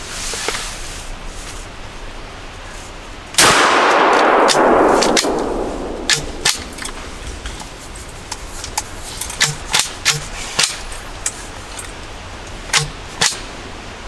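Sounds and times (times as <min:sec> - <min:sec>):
gunshot echoing: 0:03.4 - 0:07.3.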